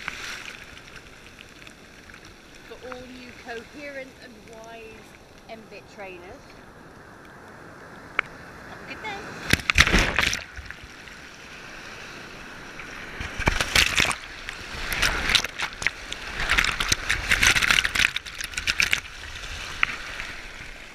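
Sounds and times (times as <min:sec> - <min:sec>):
surf rushing and splashing: 0:00.0 - 0:20.9
water hitting camera: 0:09.4 - 0:10.8, 0:13.1 - 0:20.7.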